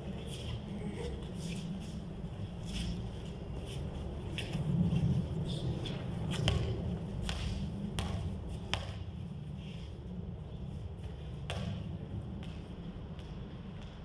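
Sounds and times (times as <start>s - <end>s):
steady low rumble: 0.0s - 14.0s
basketball bouncing on concrete: 6.3s - 9.1s.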